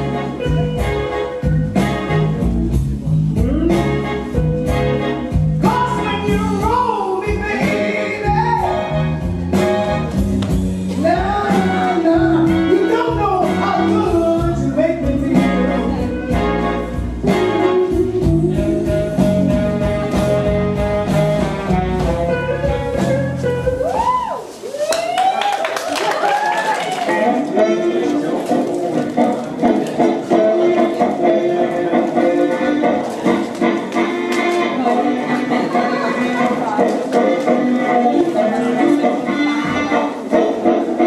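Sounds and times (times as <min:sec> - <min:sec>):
steady bass line: 0:00.0 - 0:24.2
person singing blues: 0:00.0 - 0:24.4, 0:27.0 - 0:41.0.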